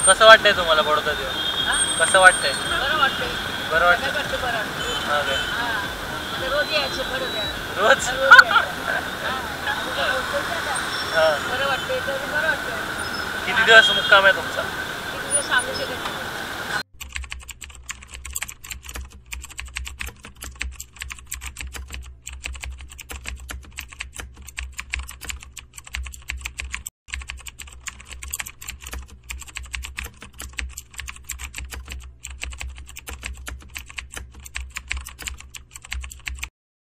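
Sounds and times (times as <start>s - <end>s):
fast keyboard typing clicks: 17.0s - 36.5s.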